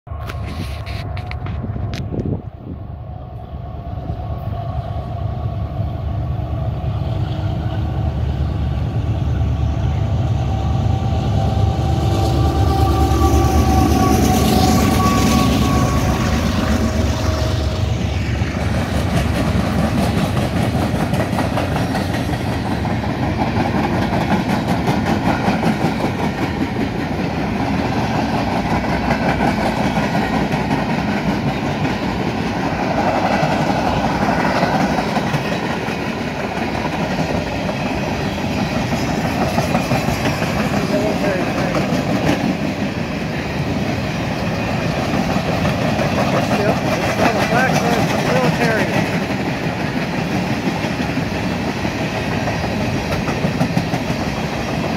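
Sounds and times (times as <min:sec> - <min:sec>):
diesel locomotives rumbling: 0:00.1 - 0:54.9
steady locomotive tone: 0:00.1 - 0:54.9
train wheel clatter on rails: 0:12.1 - 0:54.9.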